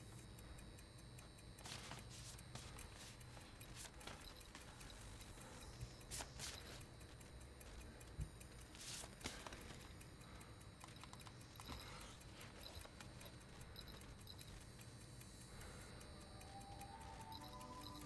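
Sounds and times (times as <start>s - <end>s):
faint clicks: 0.0s - 18.0s
paper envelopes rustling: 1.6s - 4.8s, 8.7s - 9.9s.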